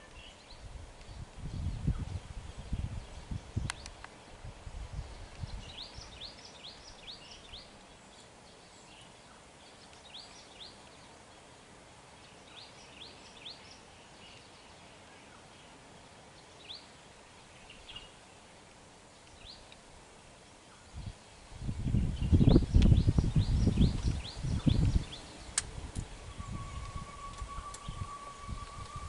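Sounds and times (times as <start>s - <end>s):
outdoor hiss: 0.0s - 29.0s
low rumbles: 21.6s - 29.0s
bird whistled calls: 22.2s - 29.0s.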